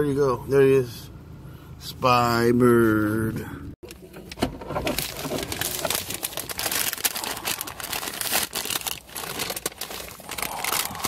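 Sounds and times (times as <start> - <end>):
paper bag crinkling: 4.8 - 11.0.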